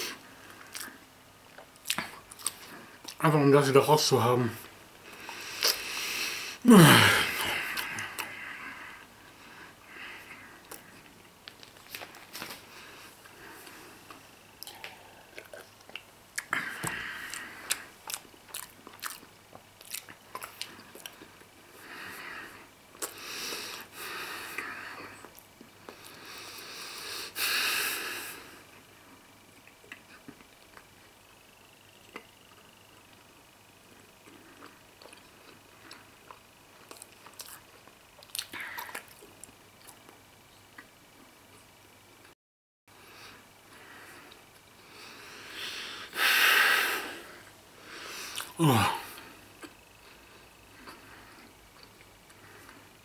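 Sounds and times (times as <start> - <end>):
person chewing: 0.5 - 3.2, 5.2 - 5.9, 13.6 - 21.4, 22.9 - 23.9, 34.2 - 40.2, 48.1 - 52.8
breathy rush: 45.4 - 49.3.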